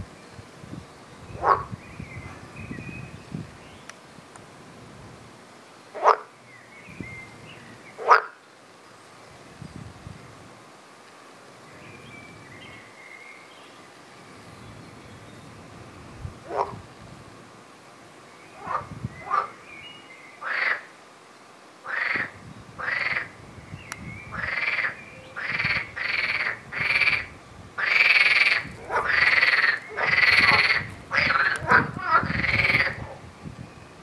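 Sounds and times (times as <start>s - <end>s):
frog croaking: 1.4s - 1.8s, 6.0s - 6.3s, 8.0s - 8.4s, 16.4s - 16.8s, 18.6s - 19.6s, 20.4s - 20.9s, 21.9s - 23.3s, 24.4s - 33.1s.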